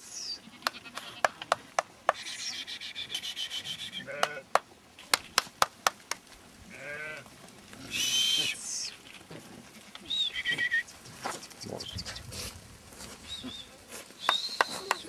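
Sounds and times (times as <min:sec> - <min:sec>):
sheep bleating: 0:00.4 - 0:01.4, 0:03.6 - 0:04.4, 0:06.7 - 0:08.5.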